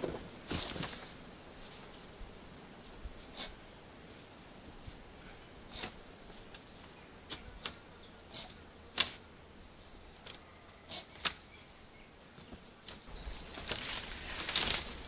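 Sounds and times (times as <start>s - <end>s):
vine rustling: 0.0s - 9.2s, 12.8s - 15.0s
vine clicking and scraping: 12.9s - 15.0s
vine cracking: 13.6s - 15.0s.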